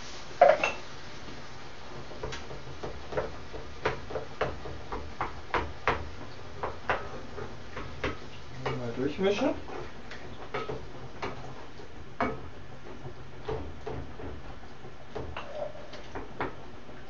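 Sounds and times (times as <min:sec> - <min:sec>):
wooden spoon tapping a pan: 0:01.9 - 0:15.6.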